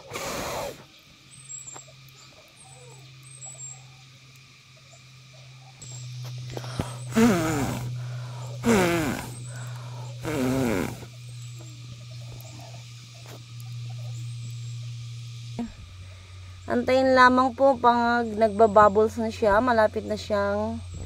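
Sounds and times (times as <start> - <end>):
low hum: 5.0 - 21.0
vocal calls sliding down in pitch: 7.1 - 7.9, 8.6 - 9.5, 10.2 - 11.1.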